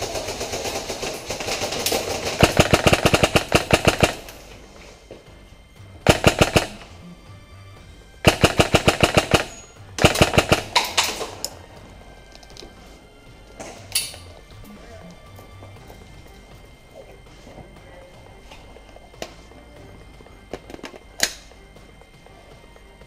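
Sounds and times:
airsoft guns firing full-auto bursts: 0.0 - 4.4, 6.0 - 6.9, 8.2 - 11.2.

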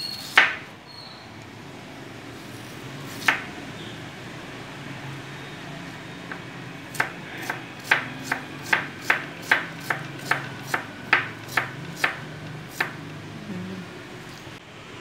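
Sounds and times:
knife chopping on wooden board: 0.3 - 0.6, 3.1 - 3.5, 6.3 - 13.1.

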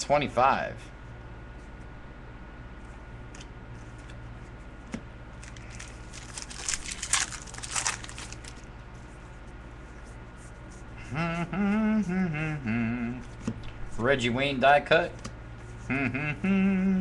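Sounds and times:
steady low hum: 0.0 - 17.0
crinkling of card pack wrappers: 5.3 - 8.7.

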